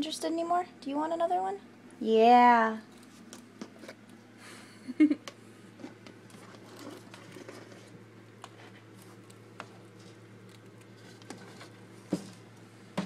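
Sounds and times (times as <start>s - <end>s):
steady low hum: 0.0s - 13.0s
rats rustling in a cage: 2.7s - 4.4s, 5.7s - 13.0s.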